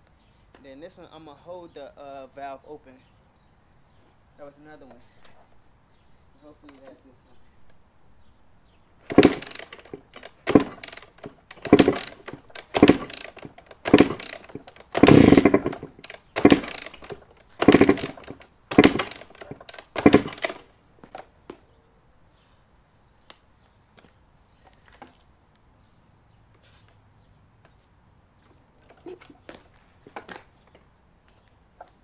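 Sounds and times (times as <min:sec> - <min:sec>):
dirt bike kick-start turning over: 0:09.0 - 0:21.3, 0:28.5 - 0:30.7.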